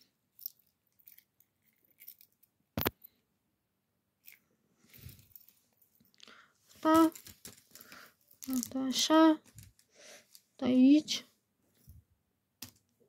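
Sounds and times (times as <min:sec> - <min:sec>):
plastic toys rustling and clicking: 0:00.0 - 0:03.1, 0:04.2 - 0:10.6.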